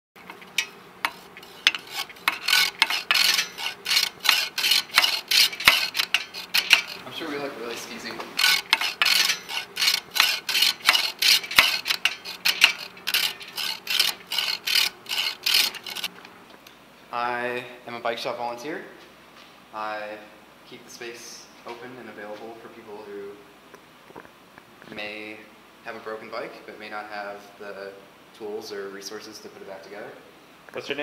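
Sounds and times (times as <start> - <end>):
hand tool rasping strokes: 0.2 - 7.2, 7.8 - 16.1.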